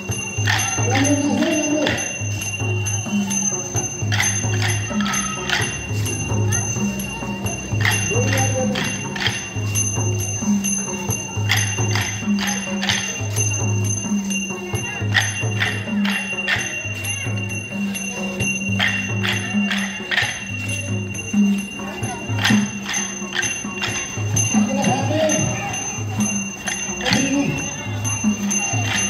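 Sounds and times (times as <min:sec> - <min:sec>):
ringing cymbal-like strikes: 0:00.0 - 0:29.0
wooden sticks clacking: 0:00.4 - 0:02.2, 0:04.1 - 0:06.7, 0:07.5 - 0:09.8, 0:11.5 - 0:13.2, 0:15.1 - 0:16.8, 0:18.8 - 0:20.8, 0:22.4 - 0:25.4.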